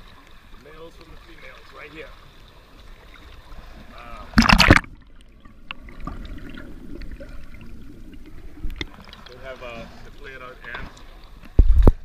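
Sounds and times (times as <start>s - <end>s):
loud splash: 4.3s - 5.0s
underwater clicks: 4.3s - 6.3s, 8.6s - 9.4s.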